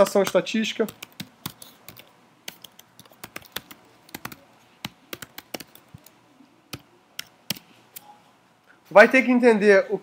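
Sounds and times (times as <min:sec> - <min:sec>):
computer keyboard typing: 0:00.0 - 0:07.7.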